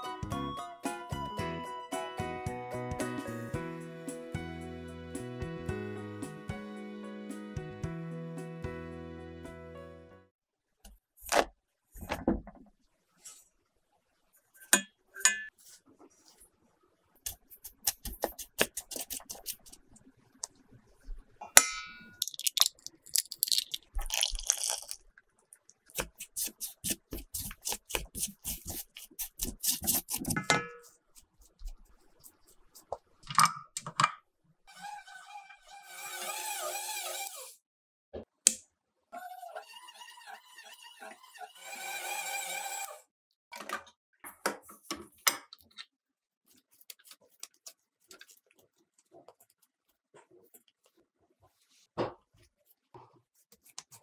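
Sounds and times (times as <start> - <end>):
metal utensils clinking on bowl: 14.6 - 15.5.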